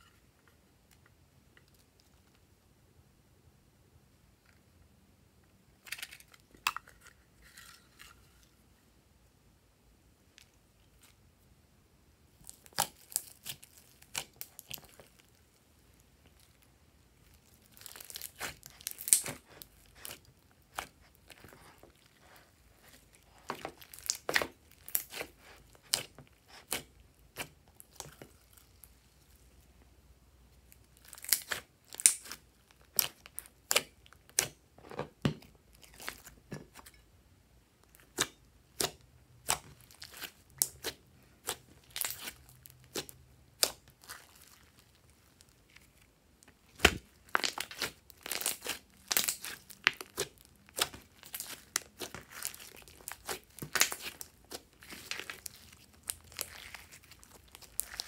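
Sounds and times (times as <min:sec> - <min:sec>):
slime clicking and popping: 0:17.7 - 0:19.4, 0:31.1 - 0:34.6, 0:46.8 - 0:58.0.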